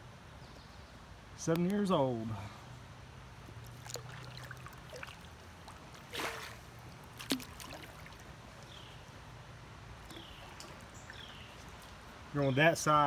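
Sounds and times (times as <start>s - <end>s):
faint running water: 3.5s - 13.0s
paddle splashing in water: 3.7s - 8.9s.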